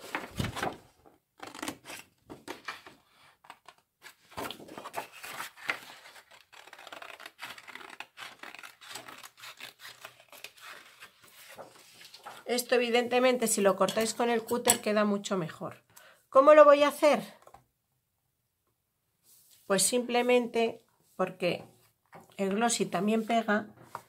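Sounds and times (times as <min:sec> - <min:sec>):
paper rustling: 0:00.0 - 0:12.7.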